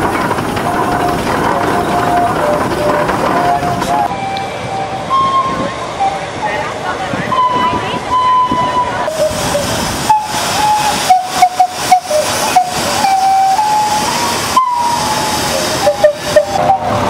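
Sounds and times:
steam calliope playing: 0.6s - 17.0s
steam hissing: 8.0s - 17.0s.

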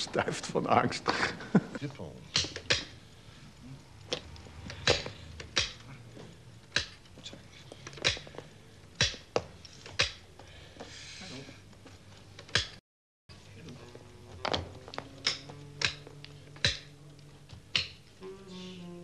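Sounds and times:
chess pieces and clock knocking: 2.3s - 3.3s, 4.0s - 10.5s, 11.7s - 12.8s, 13.9s - 18.1s.

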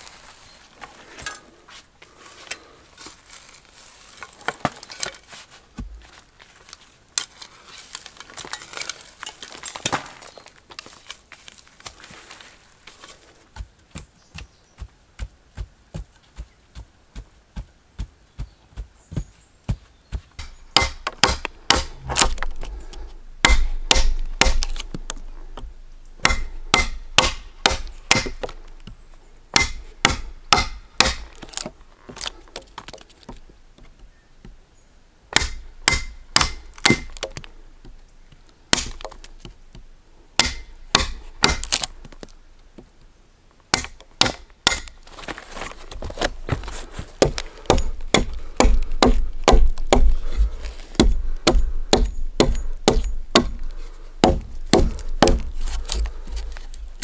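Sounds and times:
chisel and hatchet cutting wood: 20.4s - 22.6s, 23.4s - 25.0s, 26.2s - 28.6s, 29.5s - 32.3s, 35.3s - 37.4s, 40.4s - 41.8s, 43.7s - 45.0s, 47.2s - 56.7s.

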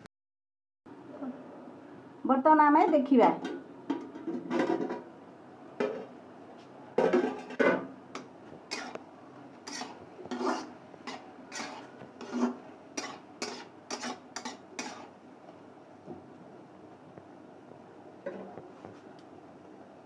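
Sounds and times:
spatula scraping a wok: 7.0s - 9.0s, 9.6s - 15.2s.

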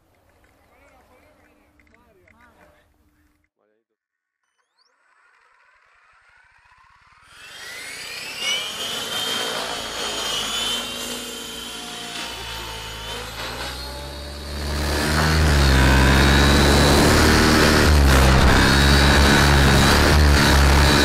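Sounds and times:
model helicopter whine: 4.6s - 21.0s
rotor noise: 5.4s - 21.0s.

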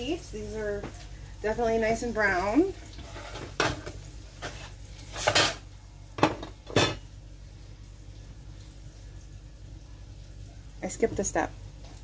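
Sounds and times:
kitchen pans clanking: 3.0s - 5.6s, 6.2s - 7.0s.

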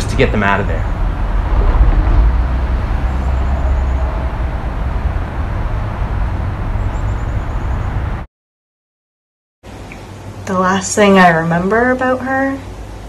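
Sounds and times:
low outdoor rumble: 0.0s - 8.2s.

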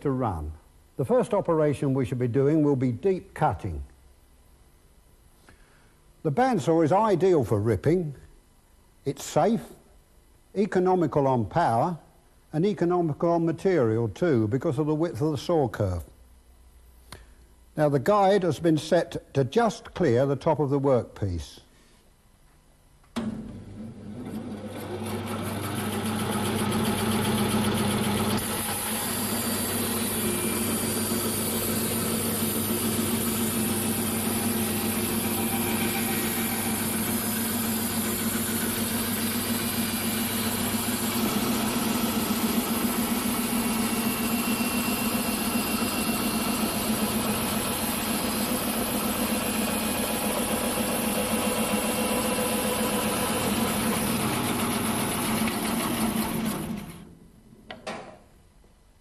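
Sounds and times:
bandsaw motor hum: 23.2s - 57.2s
saw blade cutting wood: 28.3s - 56.6s.

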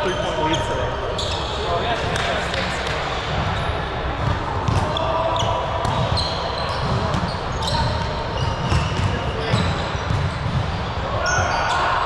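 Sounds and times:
sneaker squeaks: 0.0s - 2.3s, 3.4s - 12.0s
ball bouncing on gym floor: 4.2s - 5.0s, 5.8s - 10.8s.

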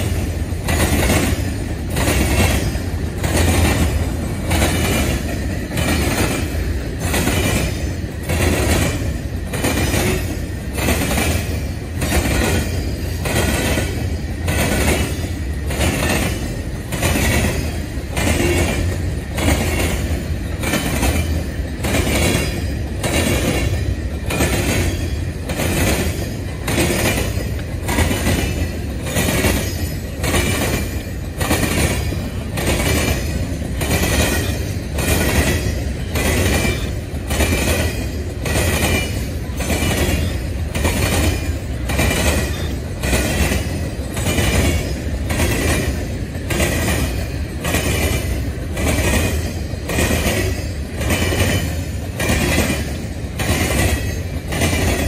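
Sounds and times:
train wheels rumbling on rail: 0.0s - 55.0s
wheels clacking over rail joints: 0.0s - 55.0s.

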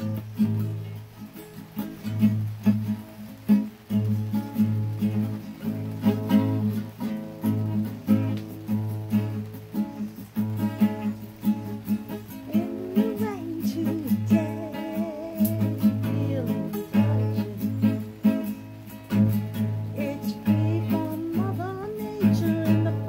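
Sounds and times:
woman singing: 0.0s - 0.6s, 12.1s - 18.6s, 19.5s - 23.0s
fingerpicked acoustic guitar: 0.0s - 23.0s.

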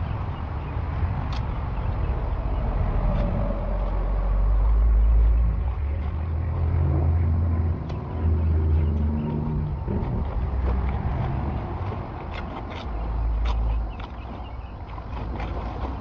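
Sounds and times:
low rumble of road traffic: 0.0s - 16.0s
tool clicking through sticks in water: 1.2s - 1.6s, 3.0s - 6.8s, 8.9s - 16.0s.

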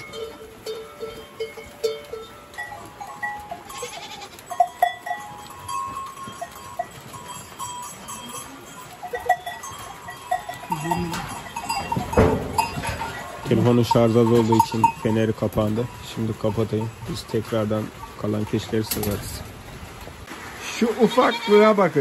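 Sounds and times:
goat bells clinking: 0.0s - 19.7s
goats shifting about: 0.0s - 22.0s
goat bleating: 3.4s - 4.7s, 21.0s - 21.8s.

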